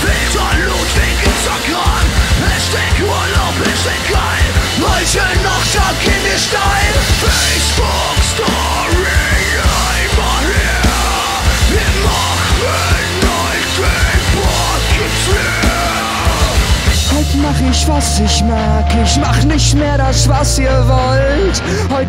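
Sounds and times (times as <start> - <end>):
pounding drums: 0.0 - 17.5
distorted guitar: 0.0 - 22.0
heavy bass: 0.0 - 22.0
shouted lead vocals: 0.0 - 22.0.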